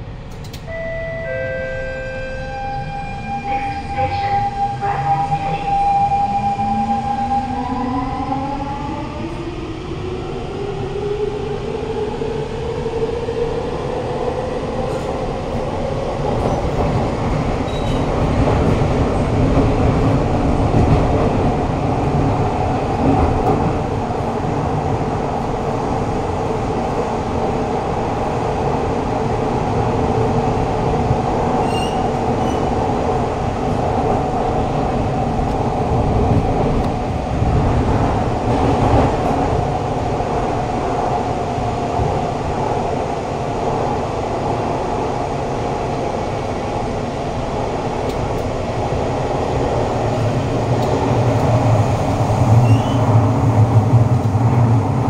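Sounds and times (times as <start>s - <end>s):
train wheels rumbling on rails: 9.2s - 55.0s.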